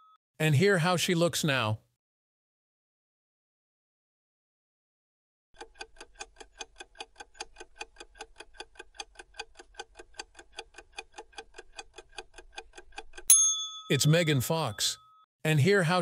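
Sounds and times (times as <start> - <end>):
clock ticking: 5.6 - 13.3.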